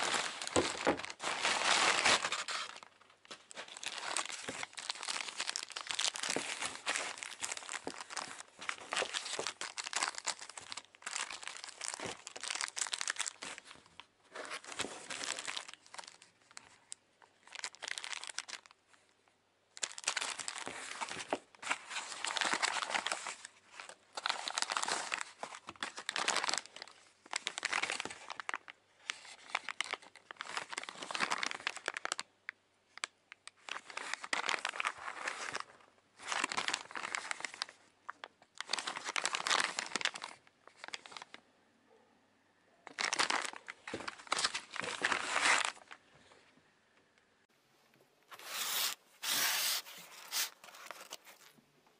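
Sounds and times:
plastic packaging crinkling: 0.0 - 18.8, 33.6 - 37.7, 38.6 - 41.3, 42.9 - 46.0, 48.3 - 51.6.

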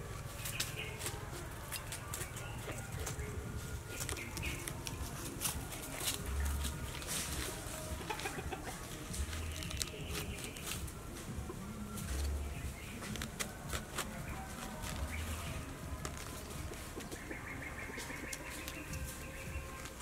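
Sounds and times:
chickens clucking: 0.0 - 20.0
knife cutting cabbage: 13.0 - 15.3.

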